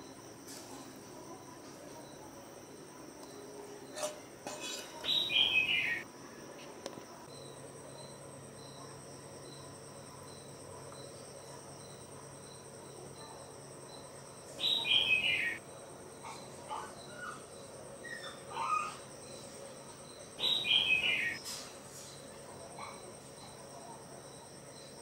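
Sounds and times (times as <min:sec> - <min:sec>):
crickets chirping: 0:00.0 - 0:25.0
bird calling with falling notes: 0:20.4 - 0:21.4.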